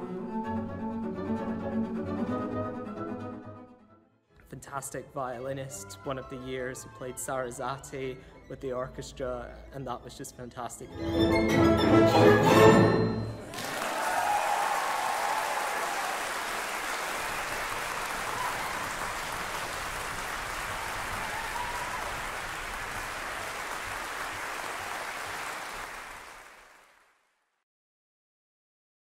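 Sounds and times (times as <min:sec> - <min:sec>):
audience applauding: 0:13.4 - 0:27.2.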